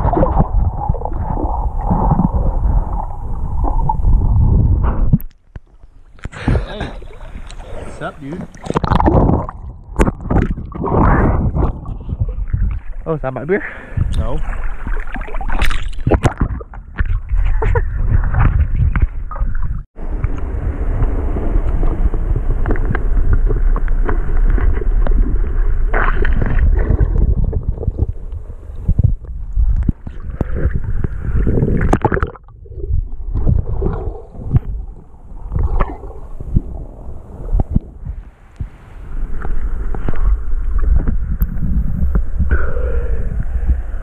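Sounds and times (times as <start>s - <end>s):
muffled underwater sloshing: 0.0s - 44.0s
water splashing surges: 6.4s - 11.4s
heavy low rumble: 17.7s - 31.8s, 32.6s - 44.0s.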